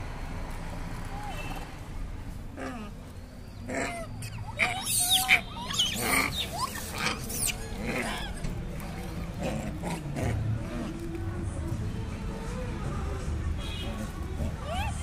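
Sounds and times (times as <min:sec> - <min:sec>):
monkeys squealing: 0:03.6 - 0:08.6, 0:14.4 - 0:15.0.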